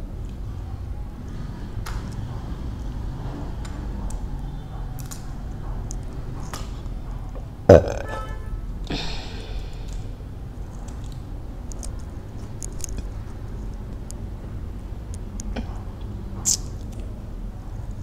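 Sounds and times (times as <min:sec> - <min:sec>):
person burping: 0:07.7 - 0:09.3.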